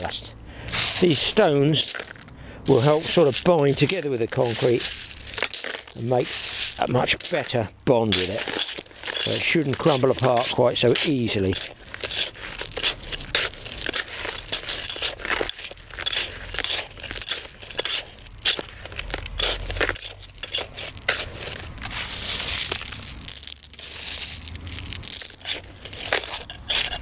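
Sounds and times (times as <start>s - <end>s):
gravel and cement crunching in bucket: 0.0s - 27.0s.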